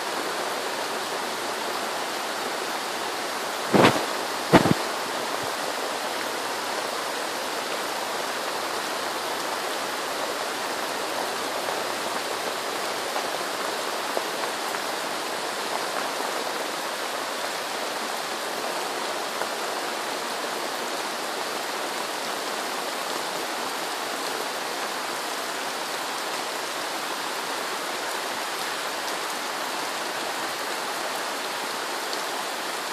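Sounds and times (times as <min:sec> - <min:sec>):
heavy rain on a thatched roof: 0:00.0 - 0:32.9.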